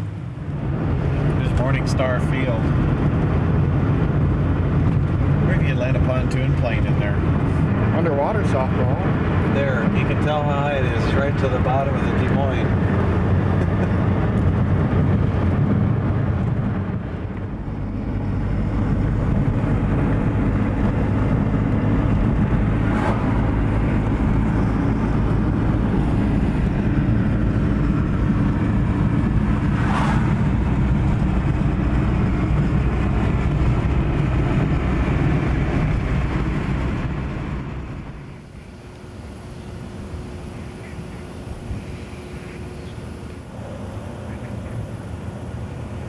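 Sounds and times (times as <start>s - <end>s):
car road and tyre rumble: 0.0s - 46.0s.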